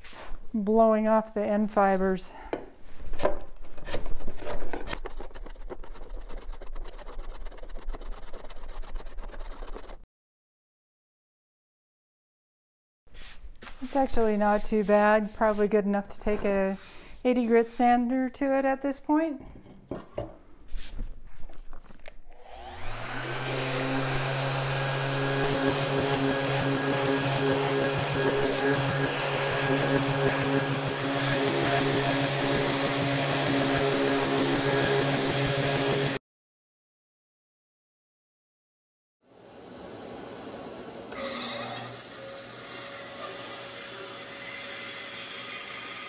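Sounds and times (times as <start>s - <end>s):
hand plane scraping wood: 3.2s - 10.0s, 22.9s - 36.2s
orbital sander whining and humming: 22.4s - 36.2s.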